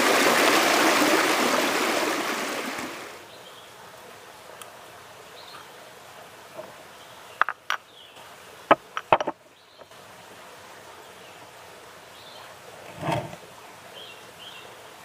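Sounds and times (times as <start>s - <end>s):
faint outdoor background: 1.8s - 15.0s
stone mortar knocking on rock: 8.7s - 9.4s.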